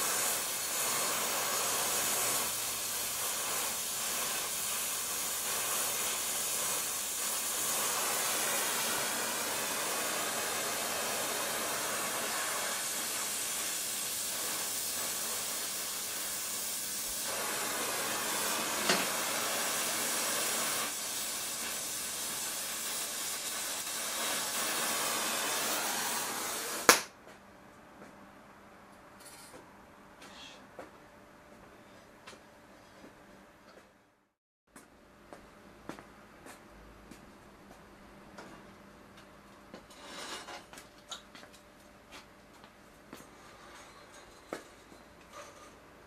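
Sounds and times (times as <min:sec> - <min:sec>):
gas welding torch hissing: 0:00.0 - 0:27.0
torch flame popping off: 0:00.0 - 0:27.1.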